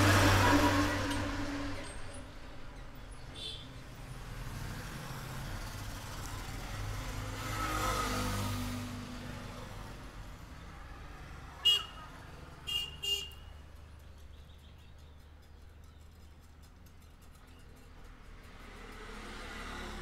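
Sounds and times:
horn toots: 0.0s - 2.0s
road traffic: 0.0s - 20.0s
vehicle rumble: 0.0s - 20.0s.

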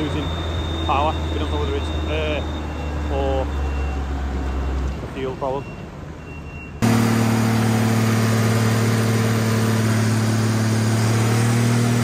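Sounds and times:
tractor diesel engine running: 6.8s - 12.0s.

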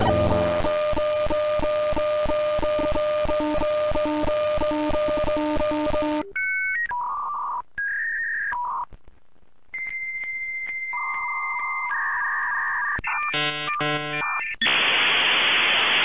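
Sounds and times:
electronic beeps changing pitch: 0.0s - 0.8s
pulsing static-like hiss: 0.0s - 0.8s.

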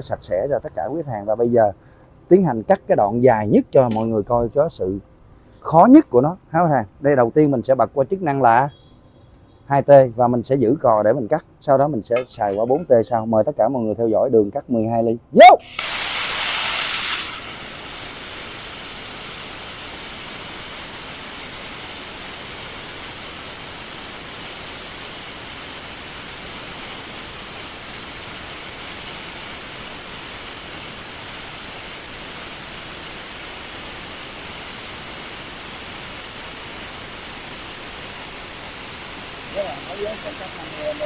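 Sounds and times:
plasma cutter hissing: 3.9s - 4.1s, 12.2s - 12.9s, 15.4s - 41.0s.

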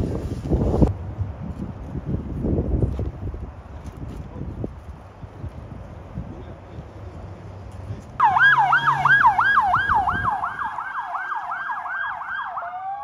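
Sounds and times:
low wind noise: 0.0s - 13.0s
ambulance siren yelping: 8.2s - 13.0s.

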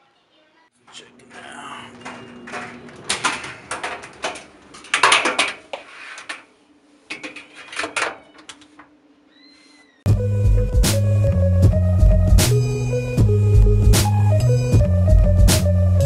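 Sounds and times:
dryer door and cage clattering: 1.9s - 5.7s, 7.1s - 8.9s.

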